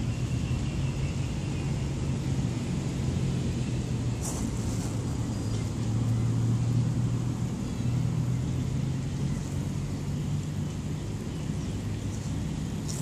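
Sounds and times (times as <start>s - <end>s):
faint rustle: 4.2s - 5.7s.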